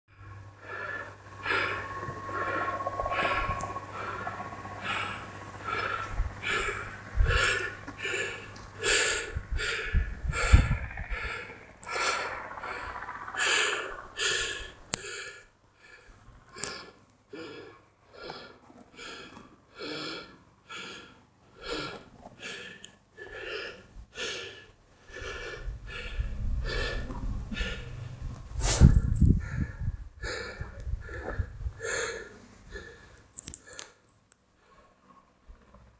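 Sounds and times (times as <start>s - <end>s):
wind buffeting microphone: 1.1s - 14.9s, 25.2s - 32.1s.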